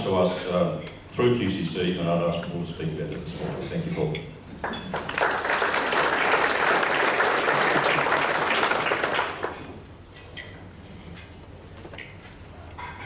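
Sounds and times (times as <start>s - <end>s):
audience applauding: 4.6s - 9.8s.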